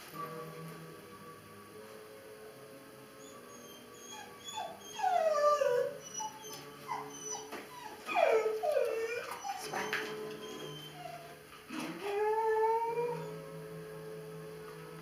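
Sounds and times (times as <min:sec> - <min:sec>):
young dog whimpering: 0:03.2 - 0:13.4.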